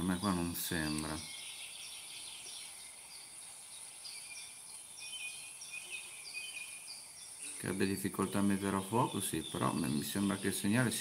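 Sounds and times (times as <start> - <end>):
insect trill: 0.0 - 11.0
small birds chirping: 0.0 - 11.0.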